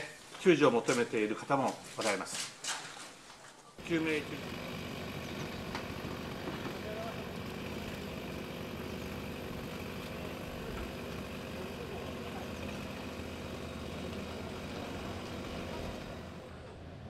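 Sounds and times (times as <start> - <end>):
heavy machinery diesel engines: 3.8 - 17.0.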